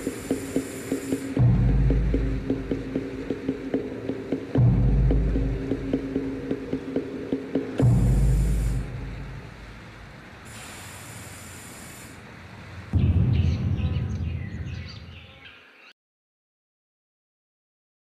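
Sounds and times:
chirping sounds: 0.0 - 1.4, 10.6 - 16.0
hiss: 0.0 - 13.0
low rumble: 12.9 - 15.2
sudden deep boom: 12.9 - 15.2.

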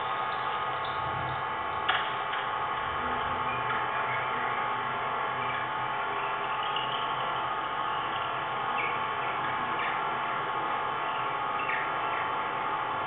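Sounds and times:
electronic buzzing drone: 0.0 - 13.0.

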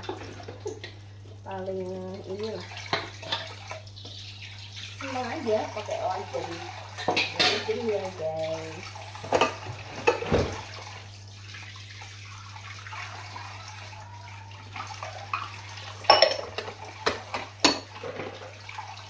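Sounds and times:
bowls clinking together: 7.0 - 7.8, 15.0 - 18.6
tap running into sink: 9.2 - 10.8.

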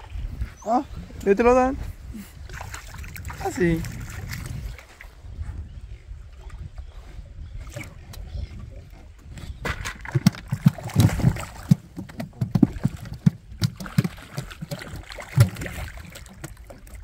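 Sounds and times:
fish splashing in water: 9.9 - 17.0.

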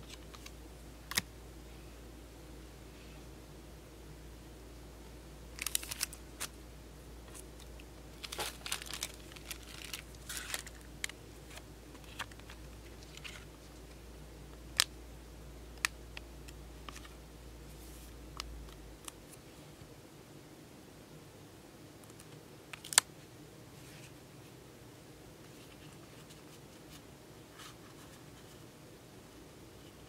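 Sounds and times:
trading cards rustling: 5.6 - 6.6, 7.3 - 13.6.

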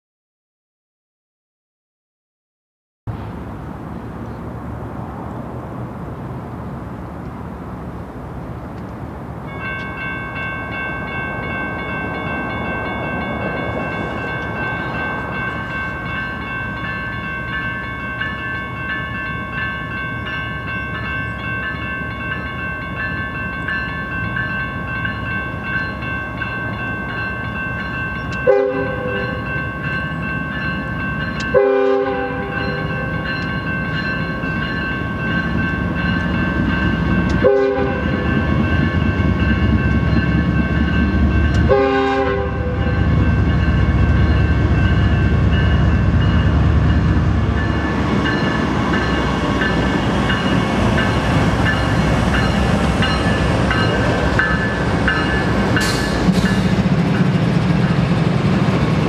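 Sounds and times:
diesel locomotive rumble: 3.1 - 59.0
crossing warning bell ringing: 9.4 - 59.0
train horn blasts: 28.4 - 29.5, 31.5 - 33.2, 37.3 - 38.4, 41.5 - 43.1.

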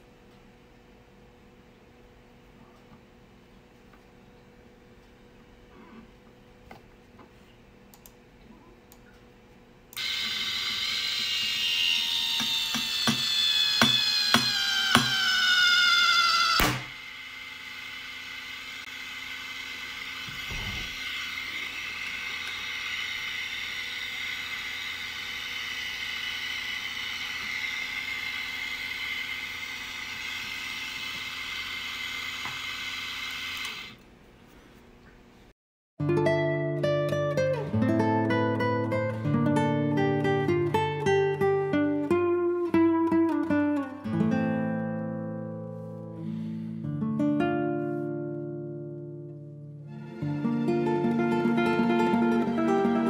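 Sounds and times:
gear motor whining: 10.0 - 34.0.

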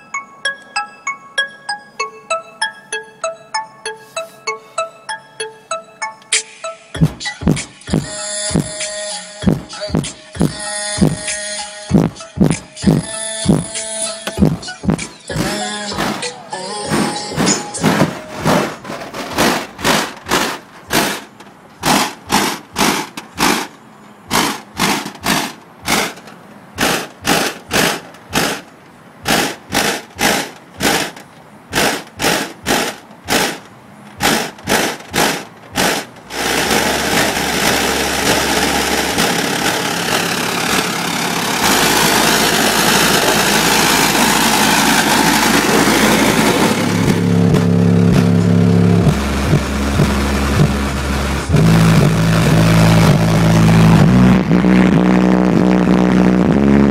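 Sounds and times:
distorted bass-heavy music: 6.3 - 21.2, 34.2 - 56.9.

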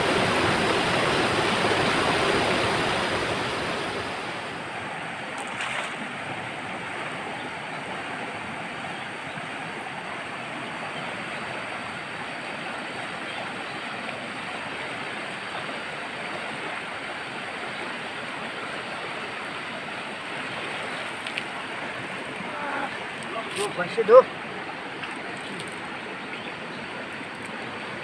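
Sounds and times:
river rushing: 0.0 - 28.0
faint click: 21.2 - 21.5.

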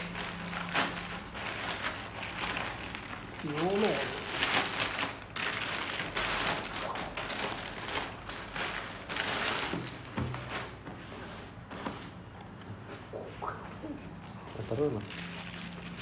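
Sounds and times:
plastic bag rustling and crinkling: 0.0 - 10.8, 14.4 - 16.0.

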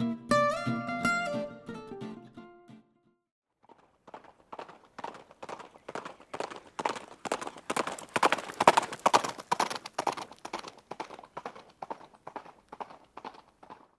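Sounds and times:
horse hooves clip-clopping: 3.6 - 13.9.

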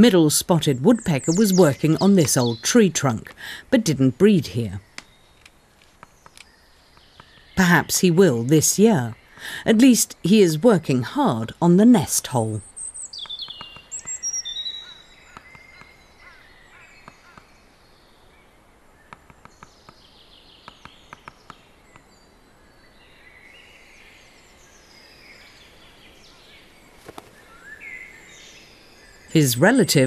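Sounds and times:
small birds singing: 0.0 - 30.0
woodpecker tapping on wood: 4.9 - 7.6, 13.1 - 16.4, 17.0 - 17.5, 19.1 - 20.0, 20.6 - 22.1.

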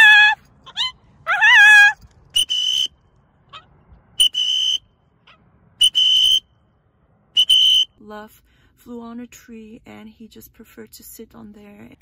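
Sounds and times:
whistle blasts: 2.4 - 3.0, 4.2 - 5.0, 5.8 - 6.6, 7.4 - 8.0.

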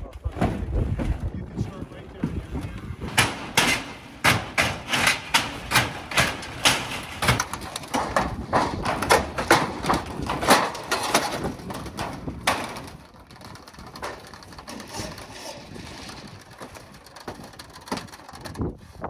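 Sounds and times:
metal clanks and scrapes on roof: 0.1 - 19.0.

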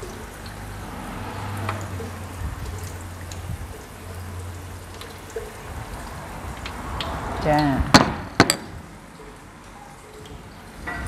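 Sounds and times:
fish deep-frying in oil: 0.0 - 11.0
oil crackles and pops: 1.6 - 7.5.

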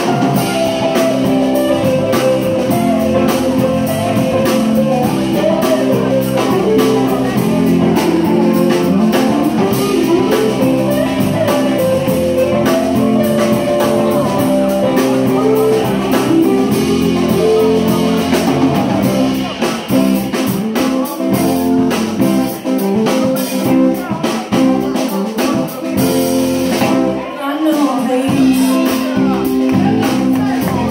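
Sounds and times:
rock band playing: 0.0 - 30.9.

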